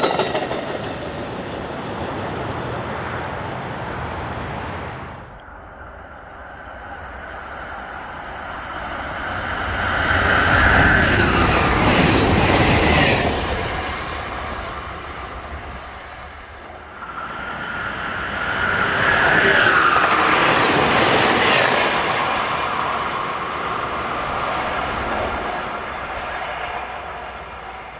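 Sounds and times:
wheels clickety-clack: 0.0 - 5.0
train passing at speed: 0.0 - 27.9.

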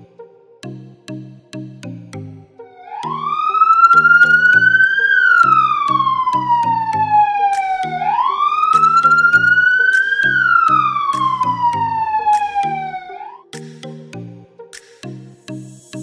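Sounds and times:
music with low stepping notes: 0.0 - 16.0
electronic police siren wailing: 2.6 - 13.5.

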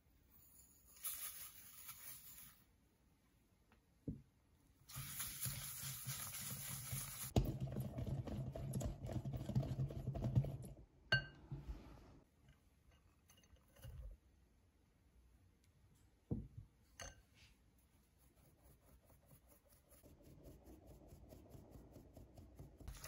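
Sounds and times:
whisk beating in glass bowl: 4.9 - 10.8
glass clink: 11.1 - 11.4.

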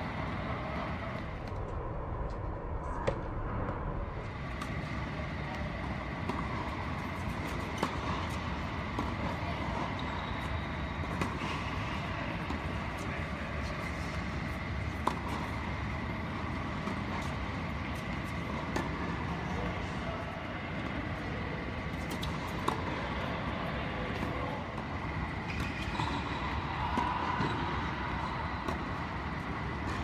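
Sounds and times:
steady background drone: 0.0 - 7.7.

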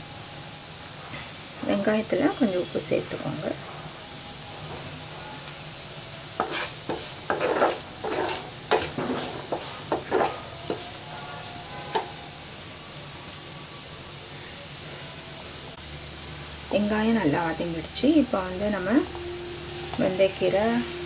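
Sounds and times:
onions sizzling in oil: 0.0 - 21.0
wooden spatula scraping pan: 6.4 - 11.1, 11.8 - 12.2.

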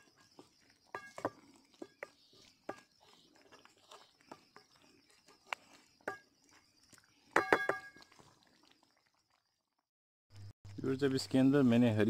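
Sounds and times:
wooden spoon scraping metal pan: 0.0 - 6.3.

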